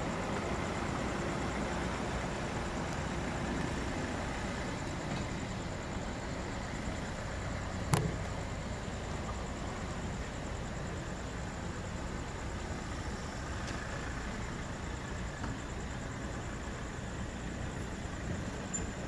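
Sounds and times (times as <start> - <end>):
sharp click: 7.9 - 8.2.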